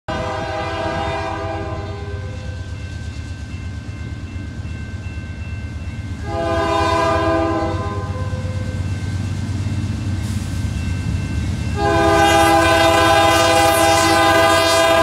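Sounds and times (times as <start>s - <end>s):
locomotive horn blasts: 0.1s - 2.6s, 6.2s - 8.7s, 11.8s - 15.0s.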